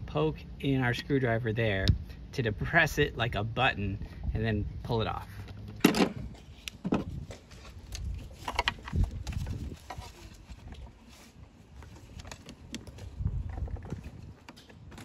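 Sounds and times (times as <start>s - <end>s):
rustling of handling: 6.1s - 15.0s.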